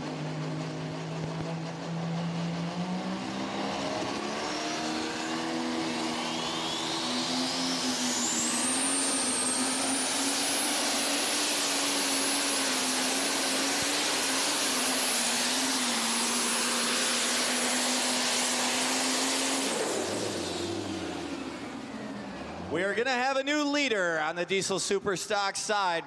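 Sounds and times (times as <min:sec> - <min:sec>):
tractor engine under full load: 0:00.0 - 0:23.0
turbocharger whistle: 0:02.0 - 0:21.9.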